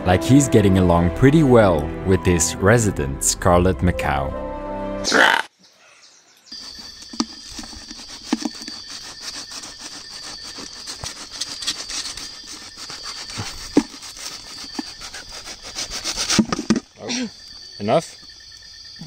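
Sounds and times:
night insects droning: 0:05.2 - 0:19.0
crunches and knocks: 0:06.6 - 0:17.0
knife sawing through crust: 0:07.5 - 0:16.6.

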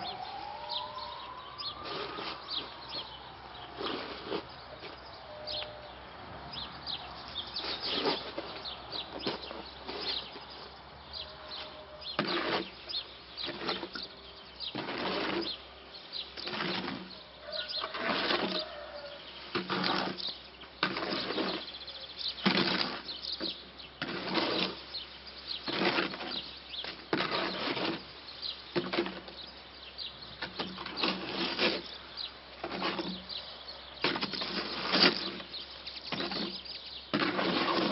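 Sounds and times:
shovel scraping concrete mix: 0:00.0 - 0:05.7, 0:07.4 - 0:29.5, 0:30.3 - 0:37.9.

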